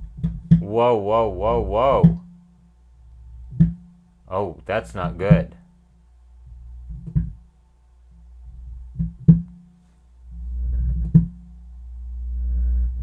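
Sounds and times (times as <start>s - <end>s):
speaker thumping: 0.0s - 2.8s, 3.5s - 4.1s, 5.0s - 5.8s, 6.8s - 7.5s, 8.9s - 9.8s, 10.8s - 11.4s.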